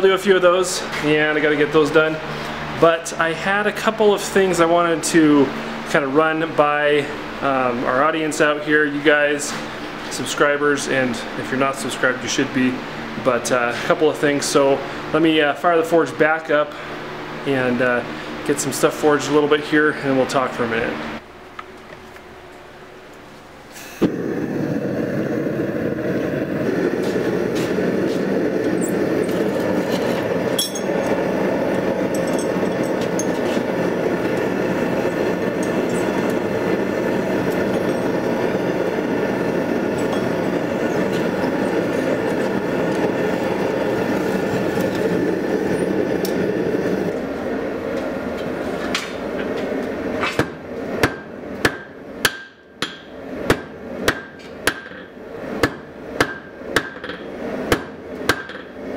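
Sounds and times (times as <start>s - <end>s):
gas forge burner rushing: 0.0s - 21.2s, 23.1s - 58.9s
hammer ringing on anvil: 30.6s - 30.9s, 51.1s - 53.1s.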